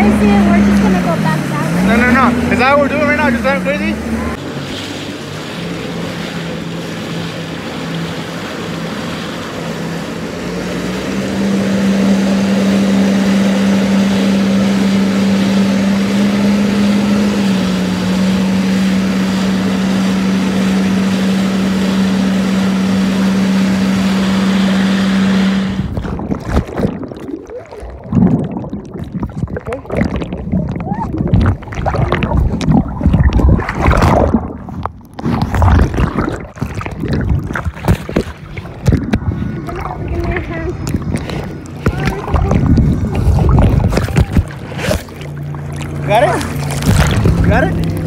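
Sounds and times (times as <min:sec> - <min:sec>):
jet ski engine running: 0:00.0 - 0:48.0
wind and water rush: 0:00.0 - 0:48.0
underwater sloshing: 0:24.2 - 0:48.0.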